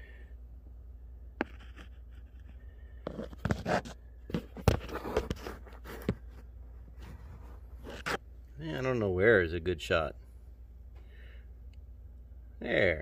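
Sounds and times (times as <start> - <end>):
low steady hum: 0.0 - 13.0
phone handling scrapes and knocks: 1.4 - 8.2.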